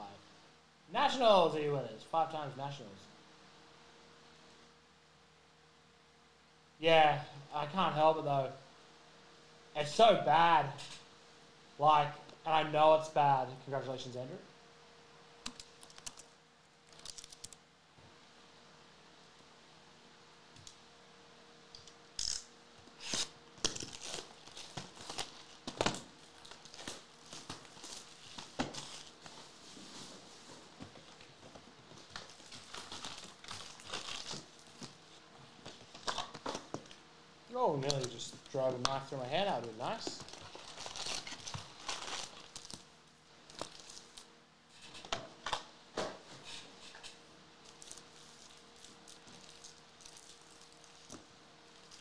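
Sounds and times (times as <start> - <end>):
plastic shrink wrap tearing: 16.9 - 17.6, 23.0 - 29.2, 32.1 - 35.0, 40.2 - 42.8, 47.7 - 51.1.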